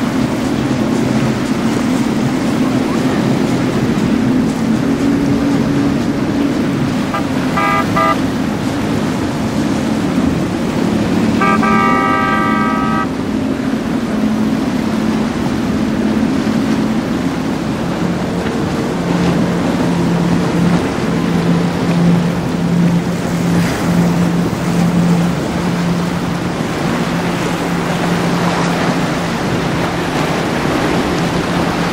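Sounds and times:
boat engines droning: 0.0 - 31.9
rushing water: 0.0 - 31.9
boat horn: 4.8 - 14.9.

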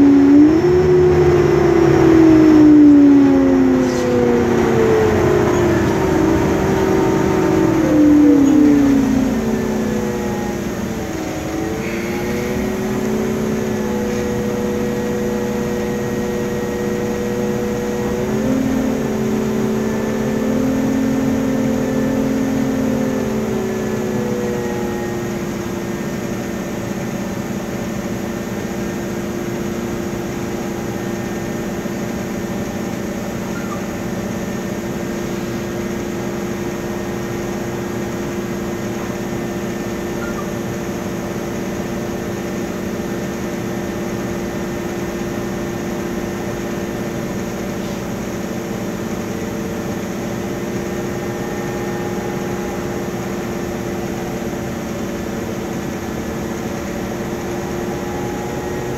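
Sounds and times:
bus engine cooling fan droning: 0.0 - 58.9.

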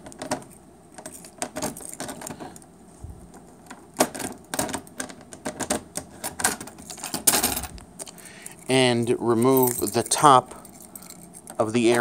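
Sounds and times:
keys jangling: 8.4 - 11.7.

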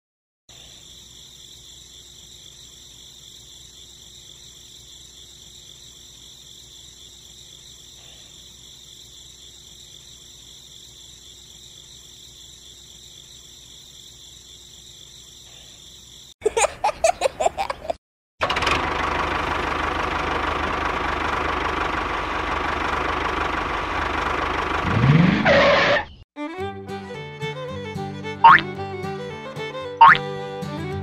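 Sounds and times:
crickets trilling: 0.5 - 17.9, 29.7 - 30.2.

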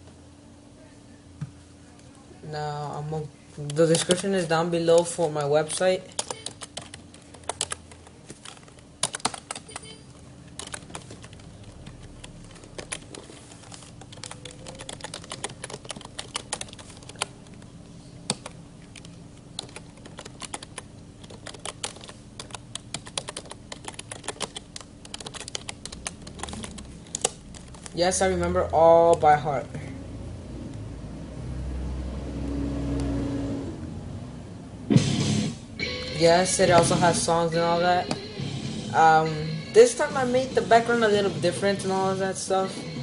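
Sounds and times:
faint steady hum: 0.0 - 43.0
keyboard typing: 3.7 - 17.7, 18.3 - 28.4.

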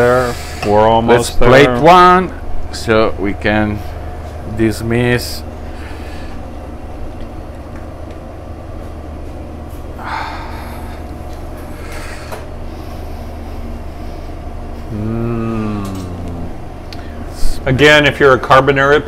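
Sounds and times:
kitchen ventilation hum: 0.0 - 19.0
person humming: 14.8 - 16.6.

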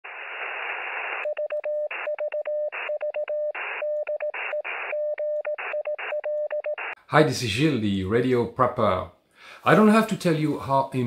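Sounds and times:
radio static hiss: 0.0 - 1.3, 3.6 - 5.0
morse code beeps: 1.2 - 7.0.

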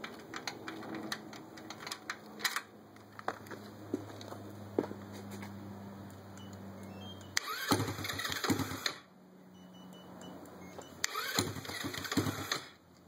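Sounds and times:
scooter engine idling and revving: 6.7 - 9.1, 10.7 - 12.9.

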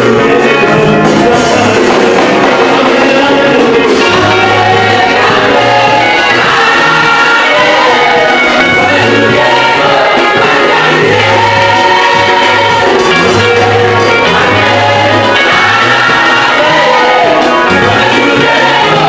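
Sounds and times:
electric bass guitar low notes: 0.0 - 19.0
electric keyboard: 0.0 - 19.0
gospel choir singing: 0.0 - 19.0.

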